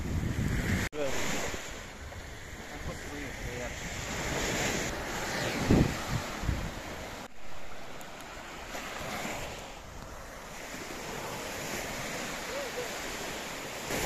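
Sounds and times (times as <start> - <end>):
wind buffeting microphone: 0.0 - 7.3
waves breaking on beach: 0.0 - 14.0.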